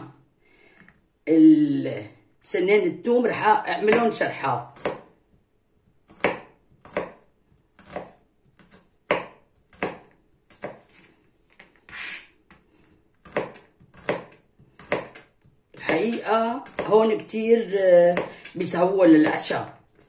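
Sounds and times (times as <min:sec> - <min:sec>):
knife slicing on plastic board: 0:07.8 - 0:11.1.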